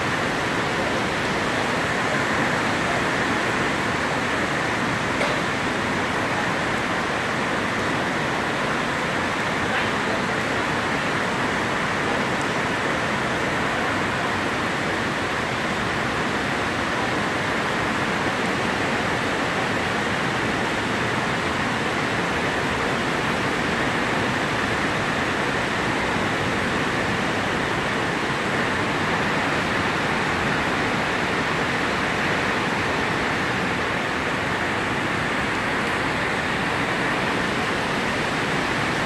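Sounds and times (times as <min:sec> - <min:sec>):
rain on a metal roof: 0:00.0 - 0:39.0.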